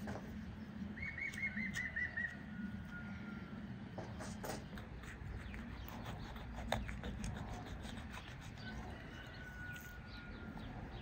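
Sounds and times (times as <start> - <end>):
thin steady whistling tone: 0.8 - 3.8, 8.1 - 11.0.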